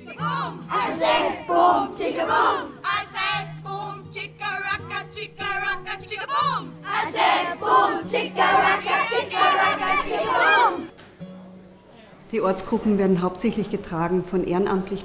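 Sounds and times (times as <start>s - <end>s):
children singing together: 0.0s - 3.8s, 6.6s - 10.9s.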